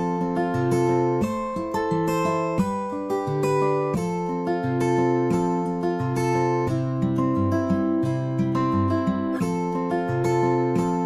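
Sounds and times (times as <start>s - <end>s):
acoustic guitar music: 0.0s - 11.0s.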